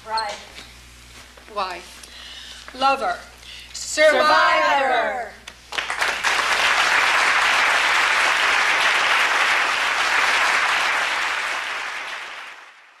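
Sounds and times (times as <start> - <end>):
audience applauding: 5.7 - 13.0.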